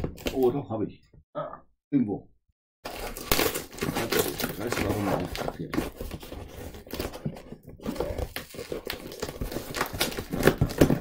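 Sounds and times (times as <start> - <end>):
knife cutting packing tape: 2.9 - 7.2, 7.8 - 11.0
cardboard scraping and rustling: 2.9 - 11.0.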